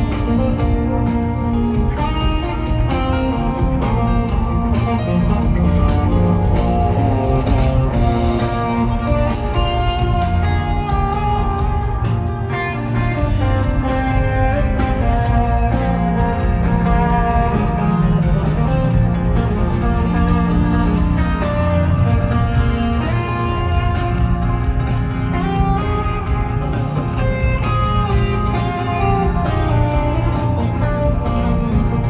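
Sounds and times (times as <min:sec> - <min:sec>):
drum beat: 0:00.0 - 0:12.5
bass: 0:00.0 - 0:32.0
electric guitar: 0:00.0 - 0:32.0.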